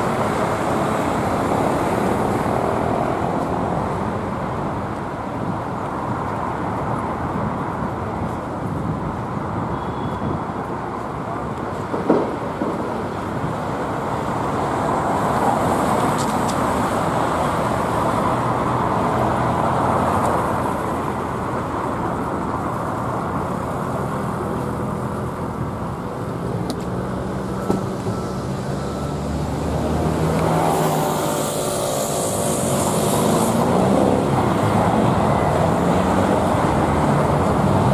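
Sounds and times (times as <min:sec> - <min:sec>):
street traffic: 0:00.0 - 0:37.9
heavy engine hum: 0:12.2 - 0:37.9
hiss: 0:31.2 - 0:33.9.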